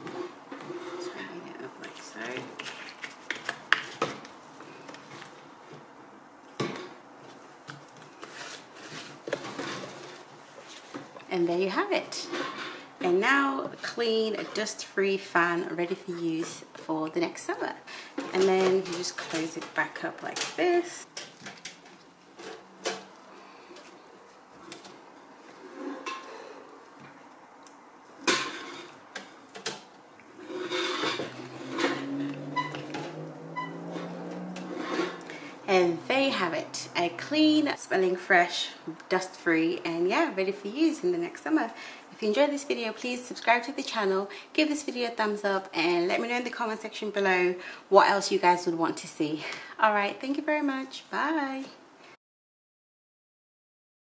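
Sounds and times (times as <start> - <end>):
rattling scrape: 30.4 - 35.3.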